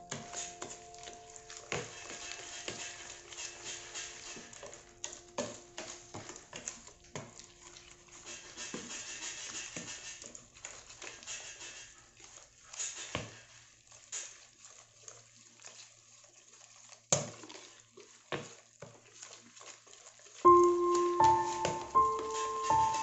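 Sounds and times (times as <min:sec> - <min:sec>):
whisk tapping plastic tub: 0:00.0 - 0:08.9, 0:20.5 - 0:23.0
faint background music: 0:00.0 - 0:09.4, 0:20.5 - 0:23.0
whisk sloshing in batter: 0:00.0 - 0:23.0.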